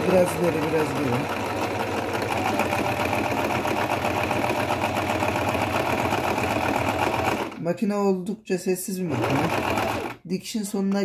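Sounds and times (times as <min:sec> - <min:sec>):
sewing machine running: 0:00.0 - 0:07.6, 0:09.1 - 0:10.2.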